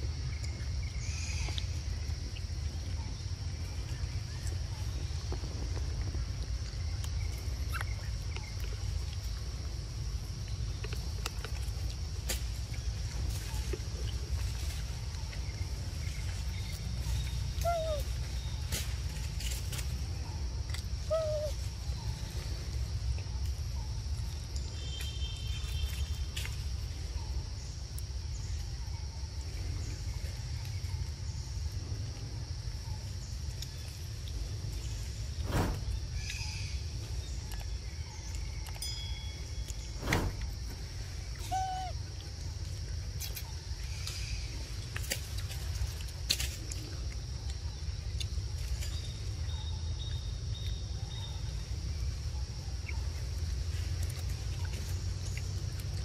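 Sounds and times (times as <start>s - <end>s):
animal call: 17.6s - 18.2s, 21.0s - 21.7s, 41.3s - 42.0s
baby monkey cooing: 17.6s - 18.2s, 21.0s - 21.7s, 41.4s - 42.0s.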